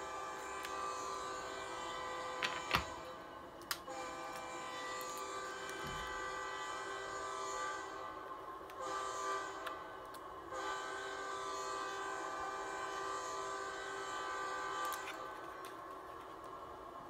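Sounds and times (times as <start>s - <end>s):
train horn blasts: 0.0s - 3.2s, 3.8s - 15.8s.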